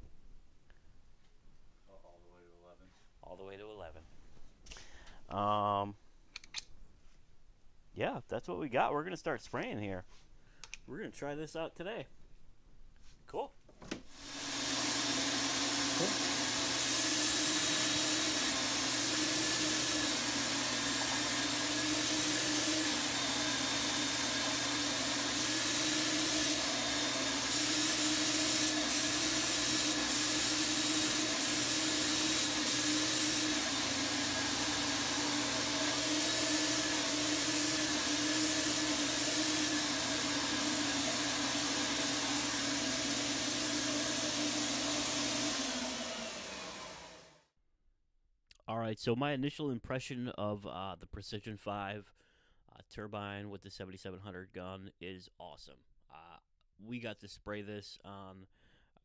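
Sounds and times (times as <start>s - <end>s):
spray gun hissing: 14.1s - 47.2s
turbine humming: 14.2s - 47.0s.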